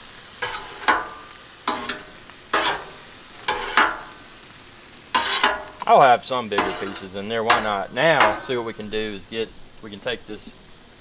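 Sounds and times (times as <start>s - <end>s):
metal strikes on griddle: 0.0s - 4.4s, 5.1s - 9.0s
meat sizzling: 0.0s - 11.0s.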